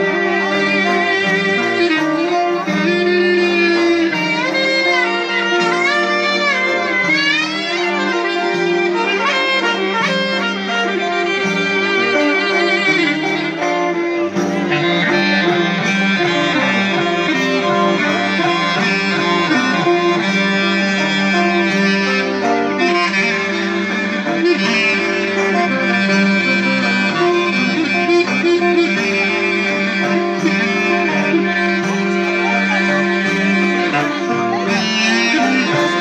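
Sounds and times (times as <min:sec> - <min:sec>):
clarinet melody: 0:00.0 - 0:36.0
lute: 0:00.0 - 0:36.0.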